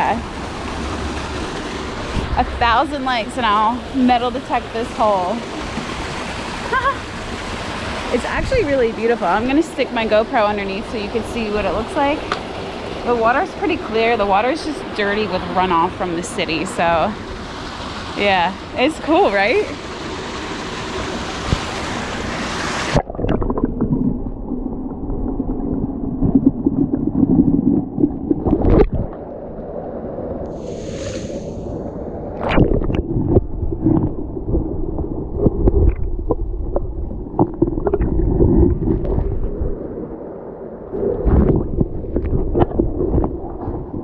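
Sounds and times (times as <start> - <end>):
stream rushing: 0.0 - 9.7, 11.5 - 24.0
underwater creek rumble and gurgle: 0.0 - 44.0
underwater knocks and clicks: 22.9 - 29.3, 32.4 - 39.8, 40.9 - 44.0.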